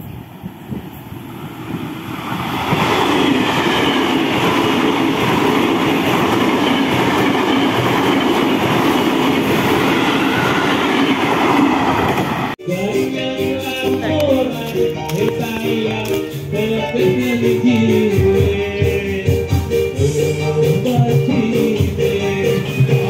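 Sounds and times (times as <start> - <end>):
train wheels rumbling on rail: 0.0 - 12.6.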